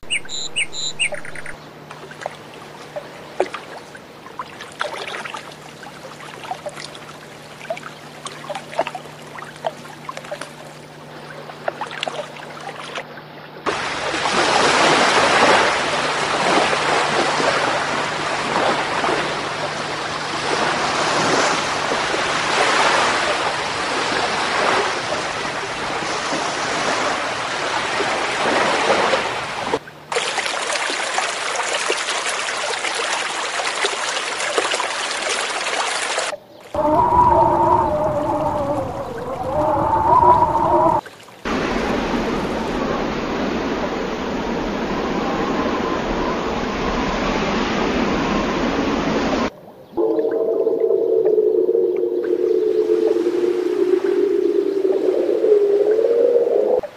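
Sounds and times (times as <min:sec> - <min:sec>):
steady low hum: 0:50.0 - 0:56.9.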